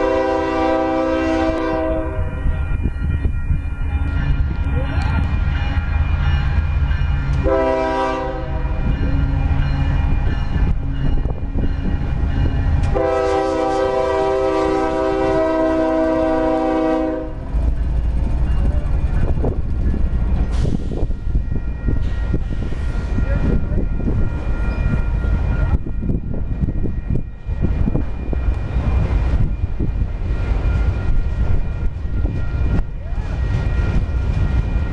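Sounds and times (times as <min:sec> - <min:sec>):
train horn blasts: 0:00.0 - 0:02.5, 0:07.3 - 0:09.4, 0:12.8 - 0:17.6
rail cars clattering on rails: 0:00.0 - 0:34.9.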